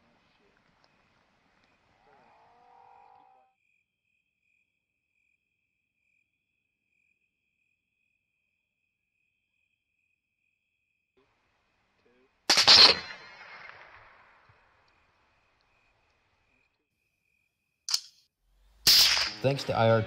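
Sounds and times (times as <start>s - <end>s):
insects trilling: 0.8s - 11.1s.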